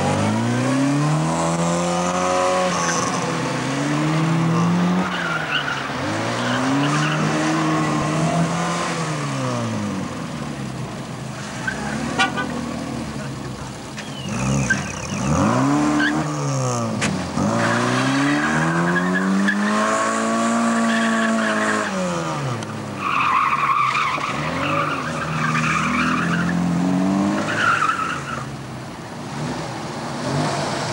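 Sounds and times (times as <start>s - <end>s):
car engine revving: 0.0s - 28.6s
tyres squealing: 13.9s - 16.3s.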